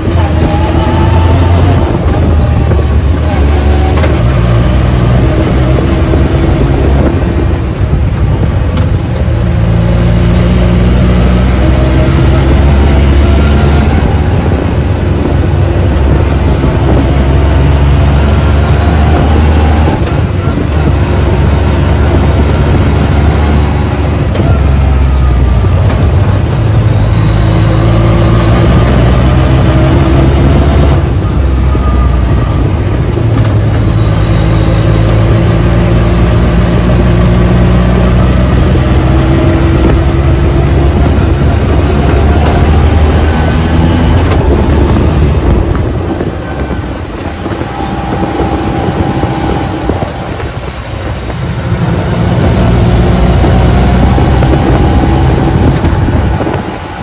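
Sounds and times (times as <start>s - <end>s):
utility vehicle engine running: 0.0s - 57.0s
wind and road noise: 0.0s - 57.0s.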